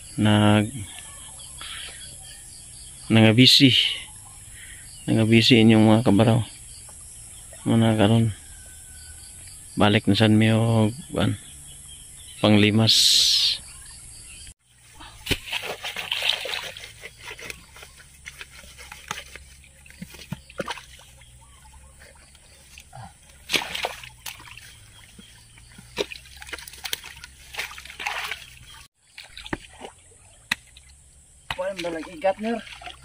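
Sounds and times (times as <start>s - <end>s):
hands splashing in muddy water: 15.0s - 33.0s.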